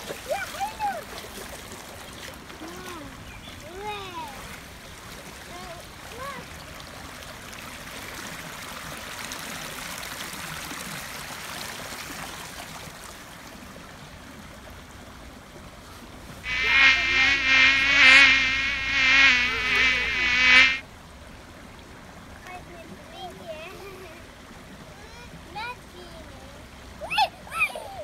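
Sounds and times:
loud steady buzz: 16.5s - 20.8s.

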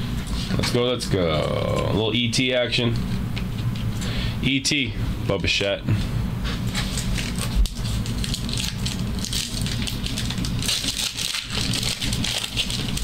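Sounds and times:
wrappers crinkling and rustling: 6.6s - 13.0s.

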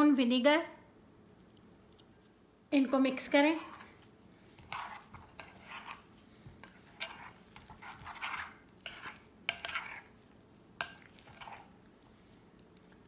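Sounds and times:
spoon scraping a glass bowl: 4.7s - 10.2s, 10.8s - 11.8s.

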